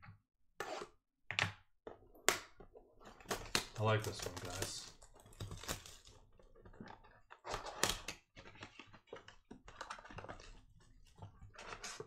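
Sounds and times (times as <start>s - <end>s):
plastic wrapper crinkling: 3.7s - 6.2s.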